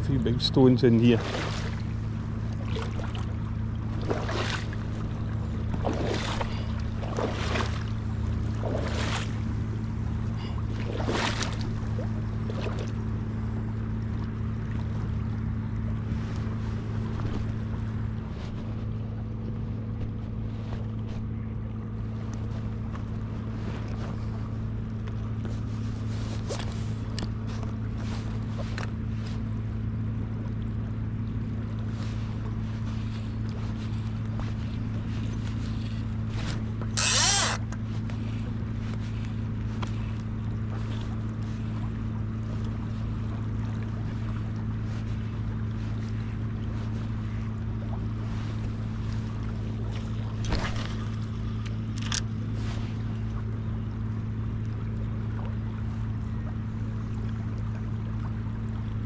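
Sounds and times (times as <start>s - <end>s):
low steady hum: 0.0s - 59.0s
river water rushing: 0.9s - 2.0s, 36.9s - 37.6s.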